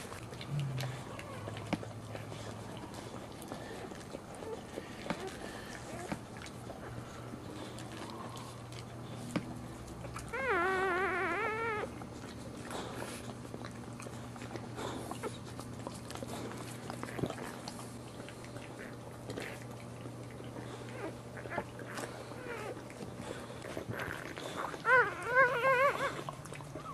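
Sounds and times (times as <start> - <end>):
dog licking puppies: 0.0 - 26.9
puppy crying: 10.2 - 12.0, 20.9 - 23.0, 23.7 - 26.9.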